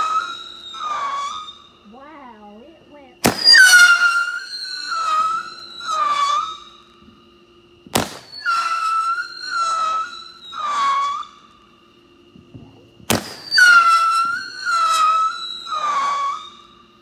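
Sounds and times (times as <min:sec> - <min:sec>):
firework whistle wails: 0:00.0 - 0:17.0
firework bang: 0:03.2 - 0:06.5, 0:07.8 - 0:10.0, 0:12.4 - 0:16.4.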